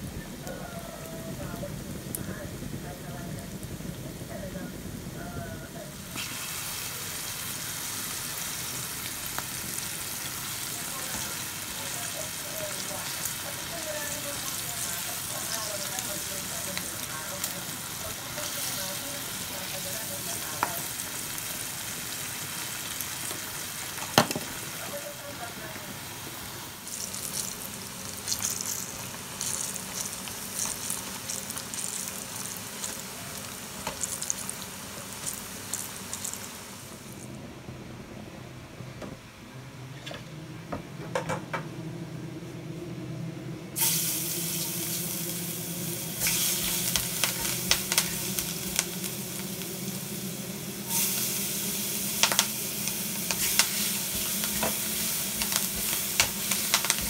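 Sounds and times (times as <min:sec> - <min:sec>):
low steady hum: 0:00.0 - 0:21.6, 0:34.6 - 0:57.0
meat sizzling in hot oil: 0:00.0 - 0:37.2, 0:43.8 - 0:57.0.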